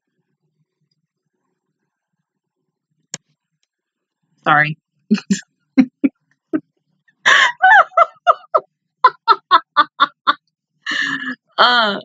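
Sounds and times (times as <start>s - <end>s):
woman laughing hard: 7.3s - 11.4s.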